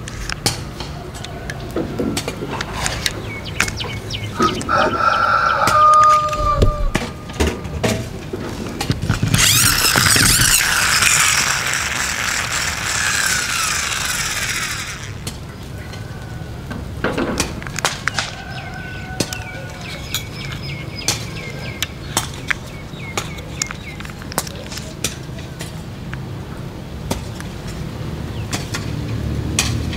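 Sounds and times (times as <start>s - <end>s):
toy wheels and gears whirring: 8.8s - 16.0s, 17.6s - 25.2s.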